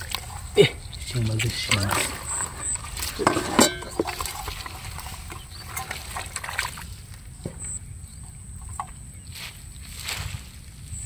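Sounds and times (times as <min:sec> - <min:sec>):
scattered splashes: 0:00.0 - 0:07.2
straw rustling: 0:00.0 - 0:07.8, 0:08.7 - 0:11.0
water slopping onto wet ground: 0:00.0 - 0:07.8.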